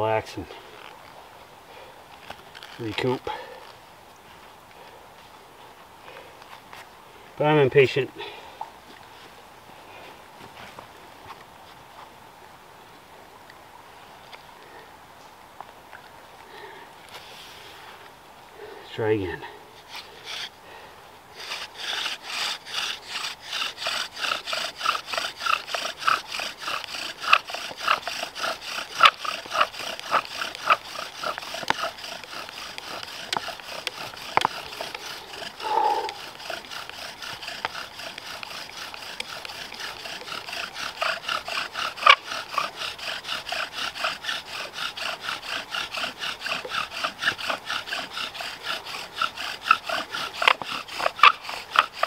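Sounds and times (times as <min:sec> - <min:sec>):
wooden spindle rubbing rhythmically: 0:19.9 - 0:20.5, 0:21.4 - 0:52.0.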